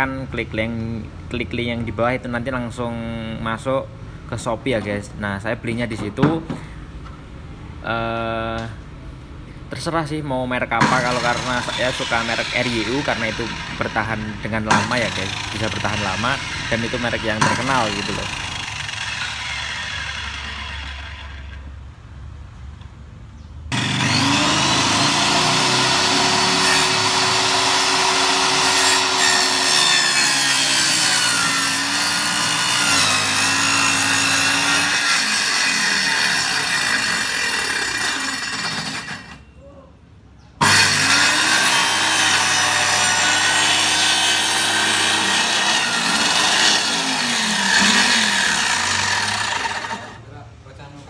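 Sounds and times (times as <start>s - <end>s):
circular saw cutting wood: 10.8s - 21.7s, 23.7s - 39.4s, 40.6s - 50.2s.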